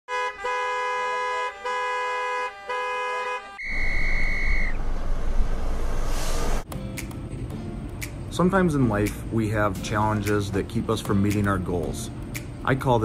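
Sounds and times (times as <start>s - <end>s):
car horn blasts: 0.1s - 4.7s
loud rushing noise: 3.7s - 6.7s.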